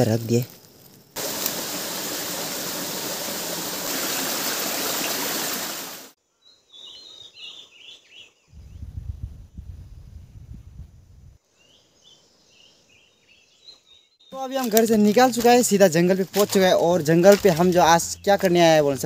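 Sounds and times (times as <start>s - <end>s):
stream water rushing: 1.2s - 6.2s
faint bird chirps: 6.2s - 9.1s, 11.5s - 14.5s.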